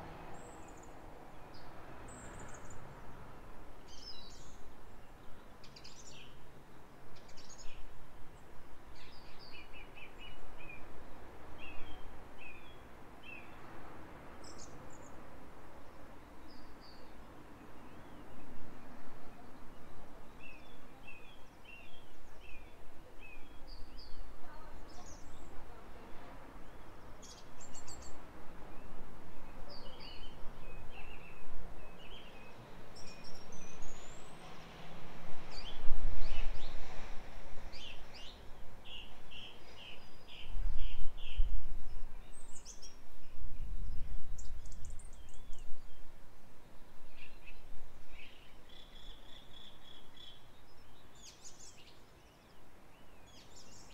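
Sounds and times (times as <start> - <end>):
small birds chirping: 3.8 - 10.9, 15.9 - 34.8, 35.4 - 53.9
wind rumbling on microphone: 17.8 - 51.9.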